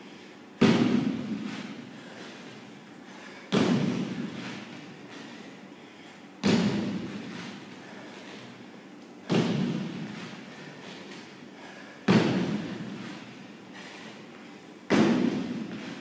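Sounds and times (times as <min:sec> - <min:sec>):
feet landing on hollow wooden box: 0:00.6 - 0:01.8, 0:03.5 - 0:05.3, 0:06.4 - 0:07.6, 0:09.3 - 0:11.0, 0:12.1 - 0:13.3, 0:14.9 - 0:16.0.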